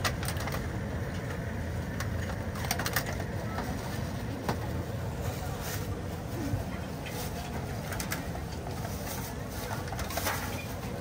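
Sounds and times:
steady low hum: 0.0s - 11.0s
crowd noise: 2.4s - 11.0s.

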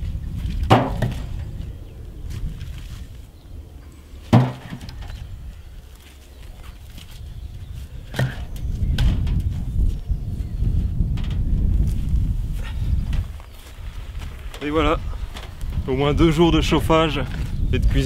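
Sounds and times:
logs knocking in wheelbarrow: 0.5s - 1.6s, 4.2s - 5.2s, 8.1s - 9.6s.

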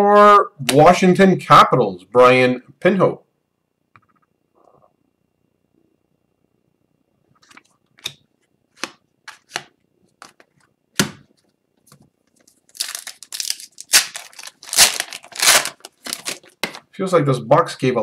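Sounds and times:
foil wrapper tearing and crinkling: 12.4s - 16.8s.

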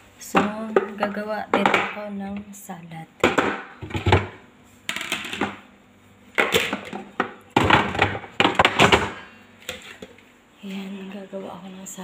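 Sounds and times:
objects clattering being set down: 3.2s - 5.6s, 6.4s - 10.2s.

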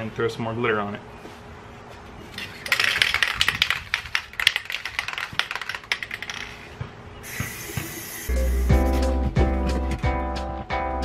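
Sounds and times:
aerosol can ball rattling: 2.4s - 8.3s
spray can hissing: 7.2s - 9.1s.

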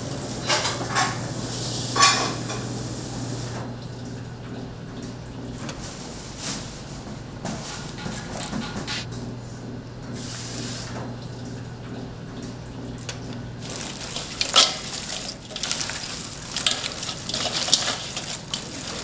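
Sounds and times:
dishes and utensils clattering: 1.9s - 2.7s, 13.6s - 19.0s.

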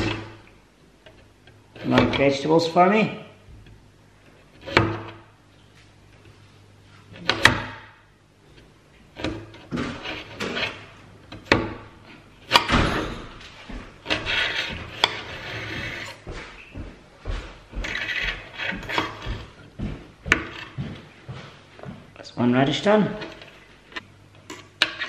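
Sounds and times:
knife sawing strokes: 14.0s - 16.2s, 17.8s - 19.4s.

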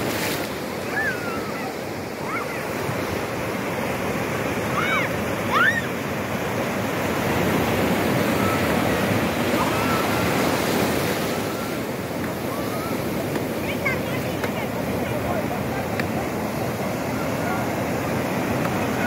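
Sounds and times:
ocean surf breaking: 0.0s - 19.0s
children shouting: 0.8s - 2.9s, 4.7s - 6.0s, 8.3s - 11.8s.

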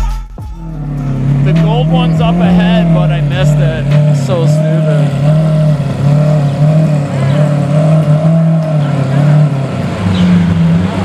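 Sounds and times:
car engine at low revs: 0.6s - 11.0s.

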